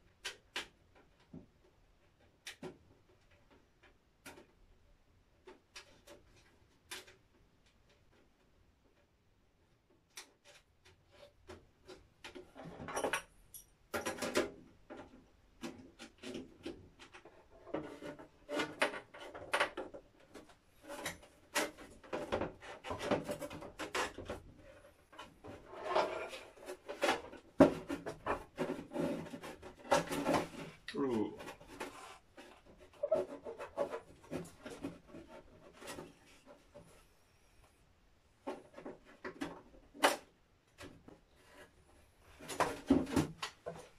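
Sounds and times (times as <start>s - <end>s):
plastic rubbing: 14.4s - 37.3s.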